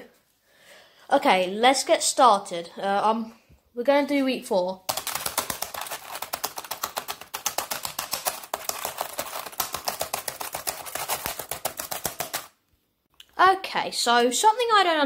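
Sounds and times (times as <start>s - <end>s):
rapid keyboard key clicks: 4.9s - 12.5s.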